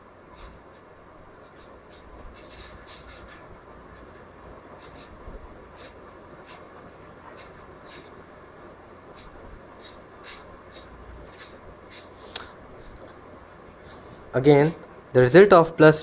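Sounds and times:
low background hum: 0:00.0 - 0:16.0
pen scratching on paper: 0:04.8 - 0:08.2, 0:09.1 - 0:12.2.

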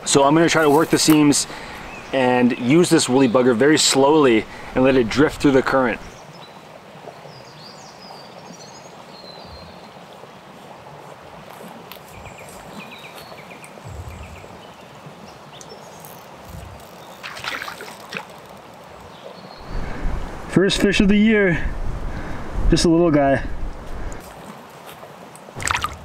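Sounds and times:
brook flowing water: 0:00.0 - 0:26.0.

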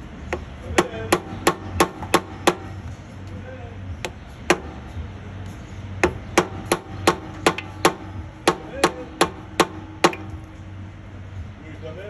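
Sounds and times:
hammer striking metal: 0:06.0 - 0:10.4.

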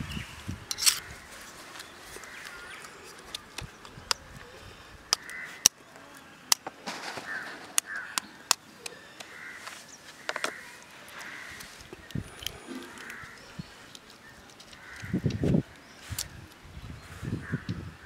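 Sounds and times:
crows cawing: 0:05.1 - 0:05.8, 0:07.1 - 0:13.5, 0:14.7 - 0:15.4.

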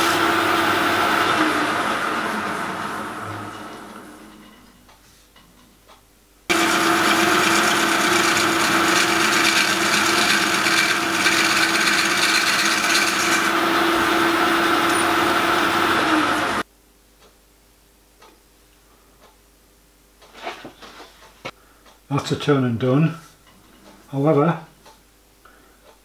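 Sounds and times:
lathe tool cutting metal: 0:00.0 - 0:04.4, 0:06.5 - 0:16.6
motor hum: 0:00.0 - 0:04.4, 0:06.5 - 0:16.6.

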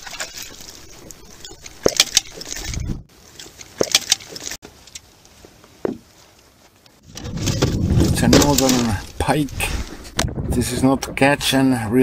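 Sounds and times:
water splashing: 0:00.0 - 0:04.6.

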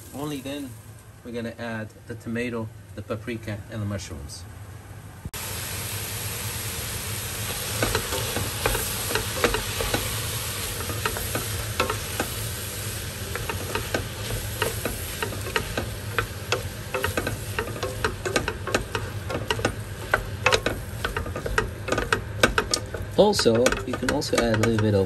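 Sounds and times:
food sizzling in oil: 0:00.0 - 0:01.1, 0:05.4 - 0:25.0
utensil scraping a pan: 0:07.7 - 0:25.0.

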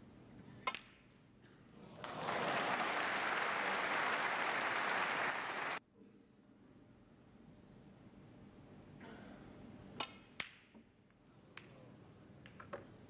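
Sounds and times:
crowd applauding: 0:02.0 - 0:05.8
snooker balls clicking: 0:12.4 - 0:12.9.

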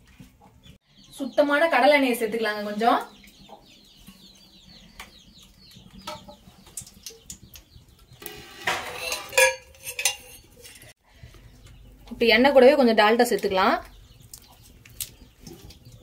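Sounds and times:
chickens clucking: 0:03.0 - 0:08.2
metallic clinks of pot and spoon: 0:09.0 - 0:10.5.

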